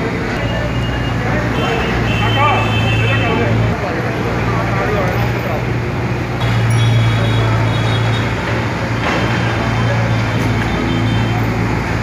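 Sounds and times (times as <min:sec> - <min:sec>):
traffic engine hum: 0:00.0 - 0:12.0.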